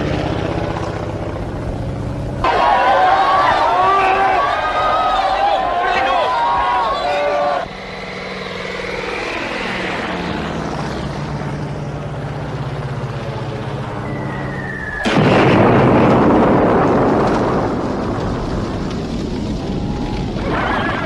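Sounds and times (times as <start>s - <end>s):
aircraft engine drone: 0.0s - 21.0s
falling whistle: 2.5s - 10.2s, 14.0s - 15.2s
bomb explosion: 15.0s - 21.0s.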